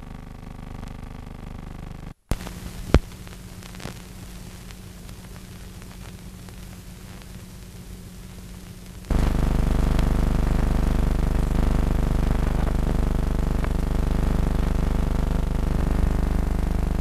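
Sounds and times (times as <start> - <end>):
sharp pop: 2.3 - 3.2
film soundtrack hiss and hum: 2.3 - 9.2.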